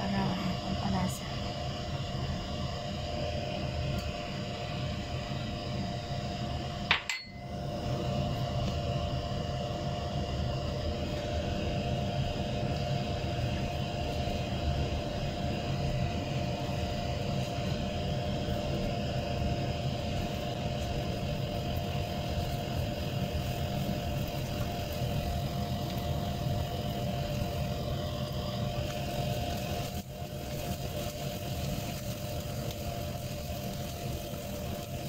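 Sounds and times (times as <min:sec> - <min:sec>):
machine hum: 0:00.0 - 0:35.0
sharp clink: 0:06.9 - 0:07.5.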